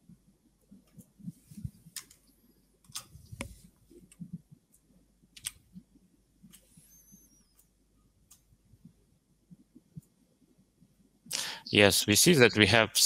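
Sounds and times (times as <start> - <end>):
mouse clicks: 5.4 - 5.6.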